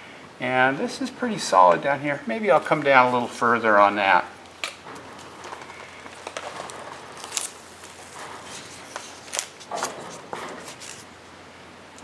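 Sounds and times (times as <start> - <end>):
masking tape ripping: 4.5 - 11.1.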